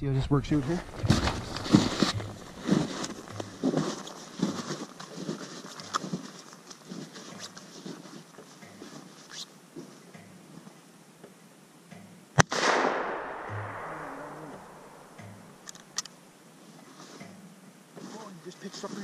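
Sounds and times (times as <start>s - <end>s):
boots crunching through snow: 0.5s - 10.0s.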